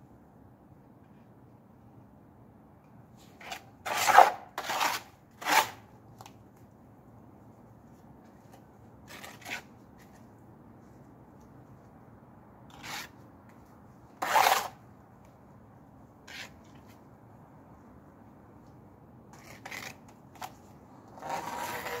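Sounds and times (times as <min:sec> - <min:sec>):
trowel scraping mortar: 0:03.4 - 0:05.8, 0:12.7 - 0:13.2, 0:14.2 - 0:14.8, 0:16.3 - 0:16.8, 0:19.4 - 0:22.0.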